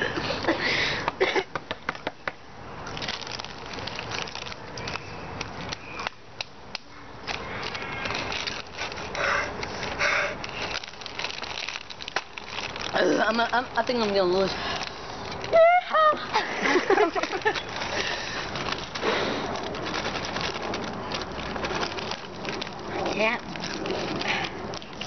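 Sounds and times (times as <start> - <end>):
foil snack bags crinkling: 2.8 - 6.2, 6.8 - 25.0
crunchy snacks being chewed: 2.9 - 6.2, 7.2 - 15.5, 16.7 - 25.0.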